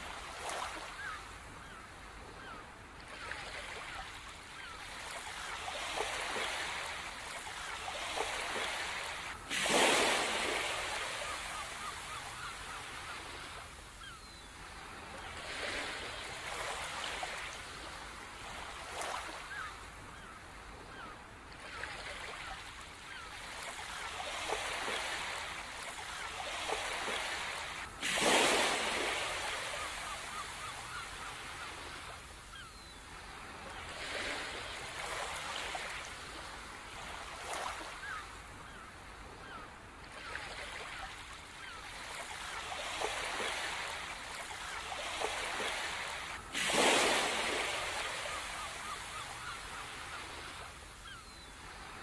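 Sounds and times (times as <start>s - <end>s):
ocean surf washing ashore: 8.0s - 12.2s, 45.1s - 50.6s.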